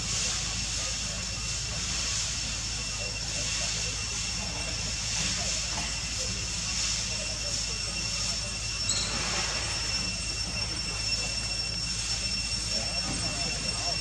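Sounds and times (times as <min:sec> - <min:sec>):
high hiss: 0:00.0 - 0:14.0
high-pitched whining tones: 0:02.4 - 0:14.0
short high chirp: 0:08.9 - 0:11.3.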